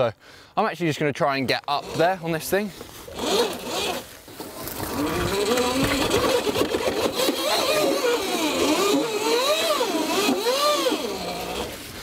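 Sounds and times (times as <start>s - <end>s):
tyre scrabbling through mud: 1.8s - 8.9s
electric motor whining: 3.1s - 12.0s.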